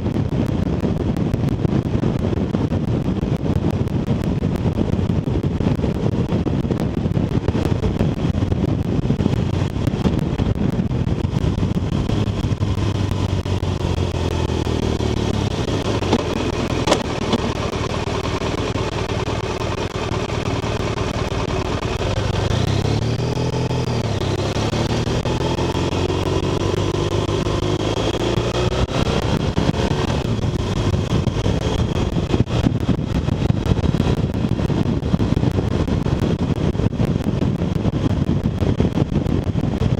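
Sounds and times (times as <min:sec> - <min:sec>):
motorcycle engine: 0:00.0 - 0:39.9
wind rushing over microphone: 0:00.0 - 0:39.9
sharp click: 0:16.9 - 0:17.5.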